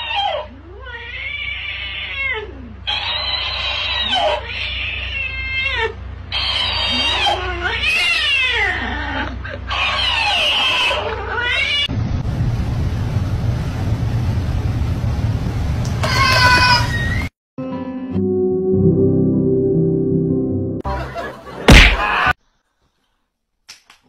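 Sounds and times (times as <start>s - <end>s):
cat meowing and yowling: 0.0s - 11.9s, 16.0s - 17.2s.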